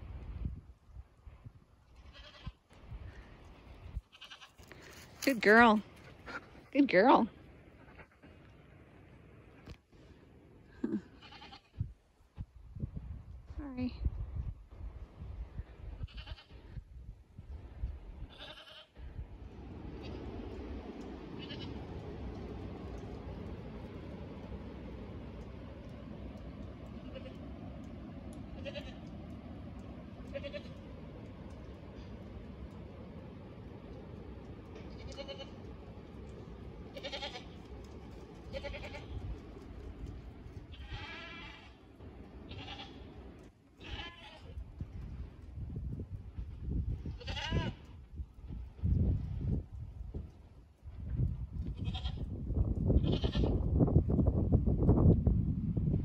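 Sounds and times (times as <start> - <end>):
goat bleating: 2.1 - 2.6, 4.1 - 4.6, 10.8 - 11.7, 16.1 - 16.5, 18.3 - 18.9, 21.4 - 21.7, 28.6 - 29.0, 30.3 - 30.8, 34.9 - 35.5, 36.9 - 37.5, 38.5 - 39.2, 40.7 - 41.8, 42.5 - 43.0, 43.8 - 44.6, 47.2 - 47.8.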